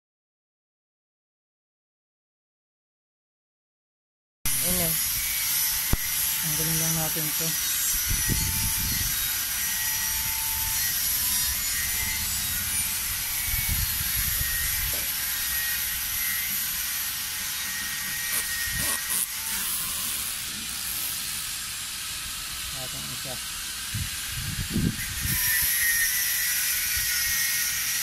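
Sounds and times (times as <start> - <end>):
outdoor background hiss: 4.5 - 25.2.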